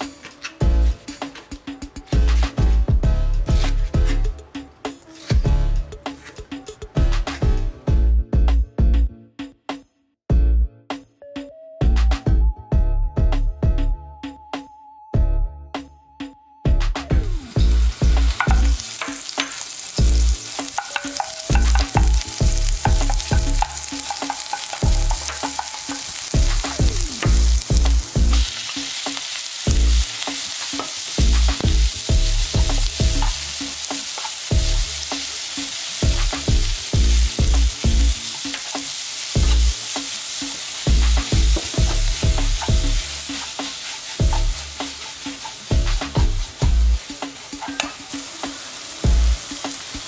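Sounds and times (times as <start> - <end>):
food sizzling in oil: 17.2 - 50.0.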